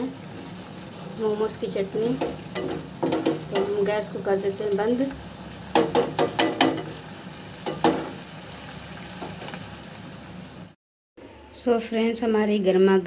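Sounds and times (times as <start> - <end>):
chutney sizzling softly: 0.0 - 10.8
wooden spatula knocking on pan: 2.2 - 3.8, 5.7 - 7.0, 7.6 - 8.2.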